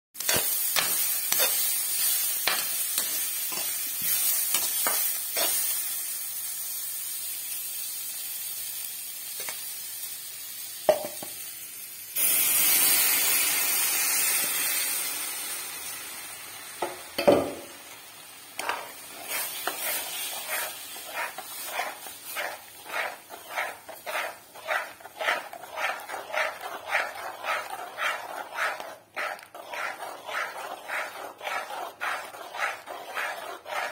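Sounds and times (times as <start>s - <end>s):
spatula stirring liquid: 0.2s - 5.7s, 18.6s - 33.9s
spatula scraping a pan: 0.2s - 5.8s, 18.6s - 33.9s
vegetables sizzling in a pan: 0.2s - 27.6s
liquid hissing in hot pan: 0.2s - 33.9s.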